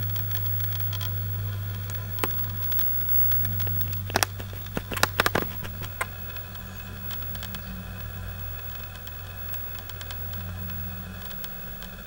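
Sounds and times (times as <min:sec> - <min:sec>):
steady low hum: 0:00.0 - 0:12.0
camera clicks and knocks: 0:04.0 - 0:06.1.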